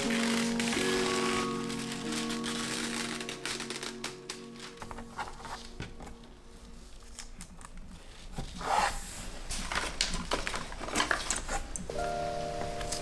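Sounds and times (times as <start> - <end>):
baking paper rustling: 0.0 - 5.8.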